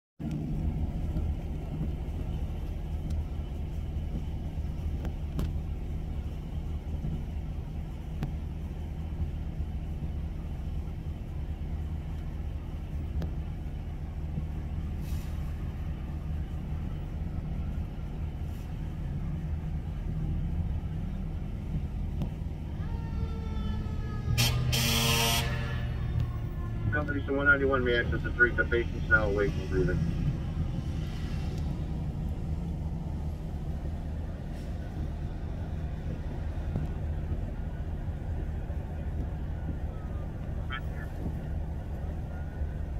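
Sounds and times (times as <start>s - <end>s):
diesel truck engine rumbling: 0.2s - 42.9s
air brake hisses: 15.0s - 15.6s.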